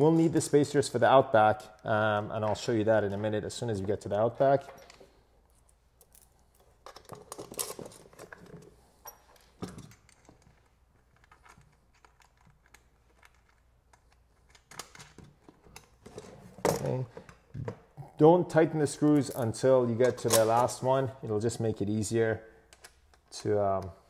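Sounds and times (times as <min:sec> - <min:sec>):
metal bolts and nuts clicking: 0:19.0 - 0:20.8.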